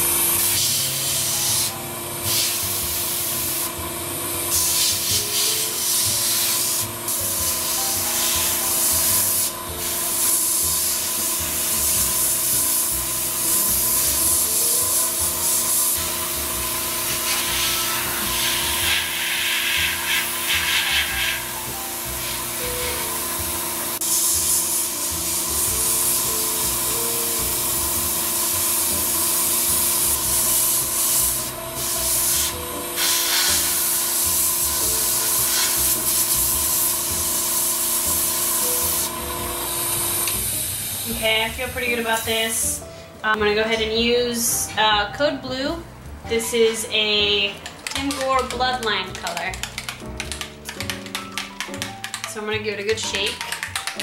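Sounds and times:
airbrush air hiss: 0.0 - 3.7, 4.5 - 41.1
air compressor hum: 0.0 - 43.3.

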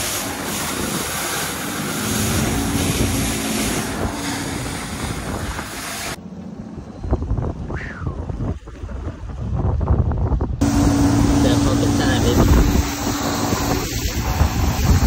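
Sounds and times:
water spray: 0.0 - 6.2, 10.6 - 15.0
outboard motor drone: 0.0 - 9.6, 10.4 - 15.0
wind noise: 0.0 - 15.0.

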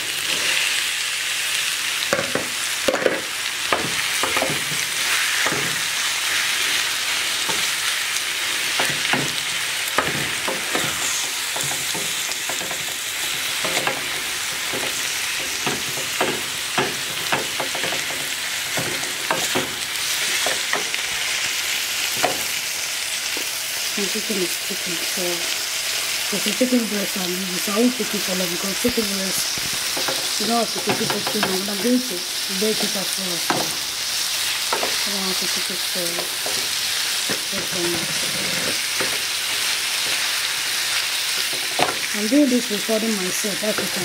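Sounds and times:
food sizzling in frying pan: 0.0 - 44.0
spatula knocking against pan: 11.6 - 13.0, 13.6 - 19.8, 33.5 - 33.8.

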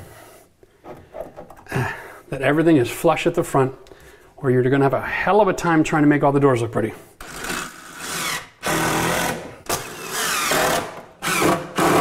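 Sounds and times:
cordless drill driving screws: 7.2 - 12.0.

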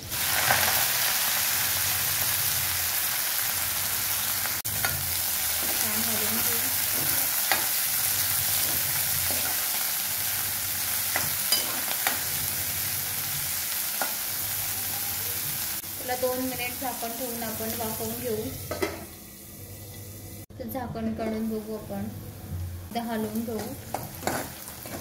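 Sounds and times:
greens sizzling in hot oil: 0.0 - 20.5, 22.9 - 25.0.

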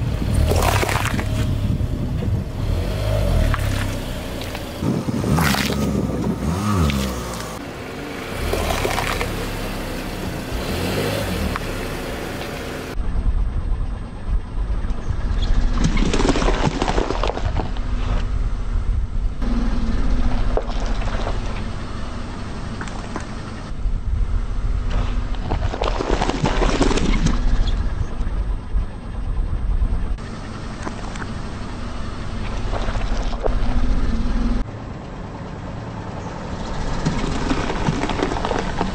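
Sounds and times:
car rumbling: 0.0 - 38.9.

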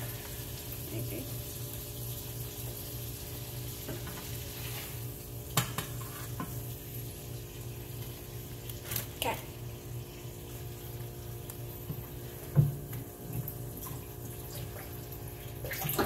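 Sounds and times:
burgers sizzling in a frying pan: 0.0 - 11.6.

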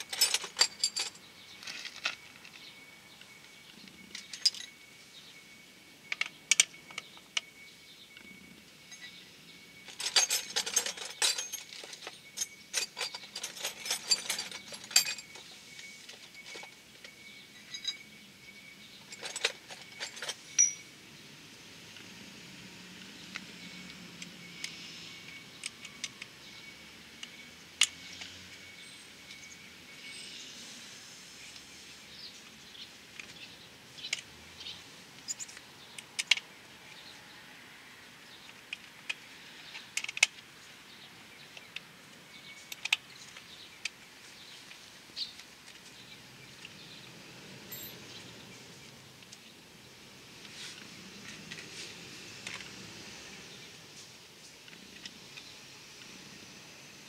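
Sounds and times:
sharp clicks and clinks: 0.0 - 4.8, 9.8 - 18.2, 18.8 - 20.9, 47.7 - 48.1.

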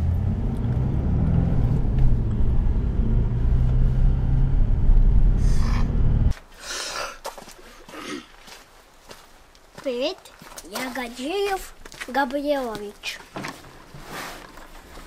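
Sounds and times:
car cabin engine and road drone: 0.0 - 6.4.

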